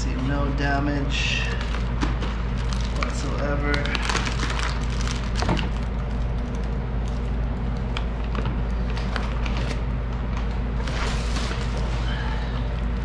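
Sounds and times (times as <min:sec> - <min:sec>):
steady low hum: 0:00.0 - 0:13.0
plastic wrapping crinkling: 0:01.1 - 0:09.8.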